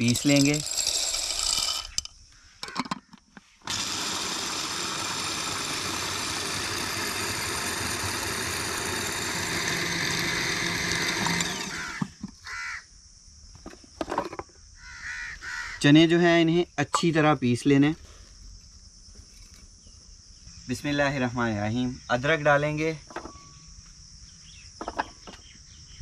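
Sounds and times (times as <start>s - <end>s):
food processor grinding: 0.0s - 2.0s, 3.6s - 12.2s.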